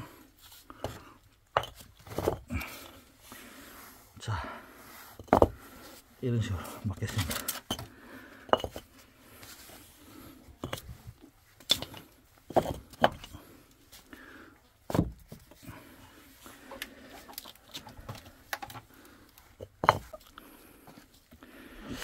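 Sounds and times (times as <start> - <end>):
paving bricks clacking together: 0.8 - 2.9, 5.2 - 5.7, 7.1 - 8.9, 10.6 - 13.5, 19.6 - 20.4.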